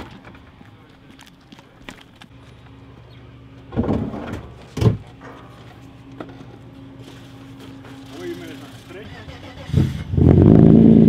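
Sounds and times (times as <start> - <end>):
rustling clatter of objects: 3.7 - 9.0.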